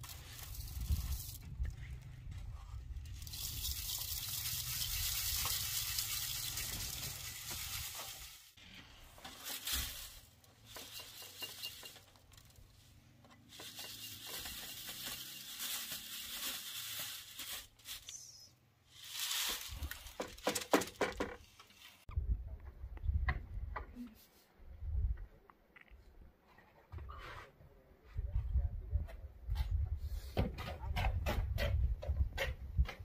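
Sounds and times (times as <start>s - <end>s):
grain sifting in sieve: 0.0s - 1.4s, 3.0s - 8.6s, 13.6s - 17.8s.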